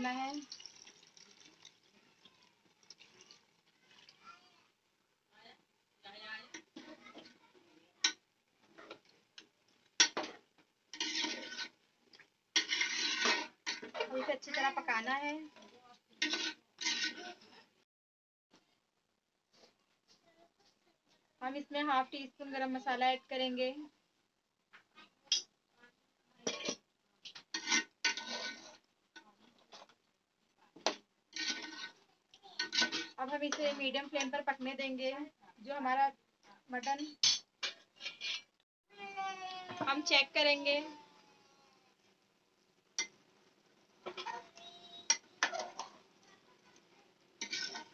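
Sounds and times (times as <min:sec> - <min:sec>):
metal spoon scraping a pot: 0:10.0 - 0:14.7, 0:15.6 - 0:17.5, 0:26.5 - 0:29.9, 0:31.3 - 0:32.0, 0:32.6 - 0:34.4, 0:37.2 - 0:38.5, 0:44.0 - 0:46.1, 0:47.4 - 0:47.9
spoon clinking on pot: 0:47.4 - 0:47.9.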